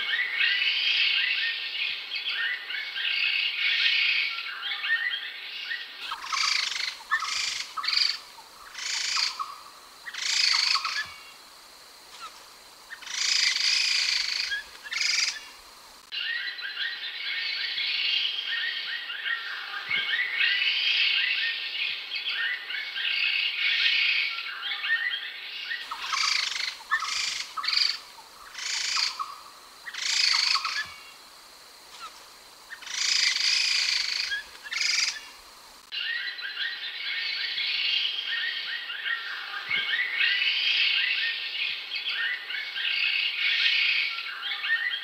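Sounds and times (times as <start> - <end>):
loud bird call phrases: 2.3 - 11.3, 12.9 - 15.5, 22.3 - 31.2, 32.7 - 35.3
bird rapid chattering: 6.1 - 11.0, 25.9 - 30.8, 32.8 - 35.2.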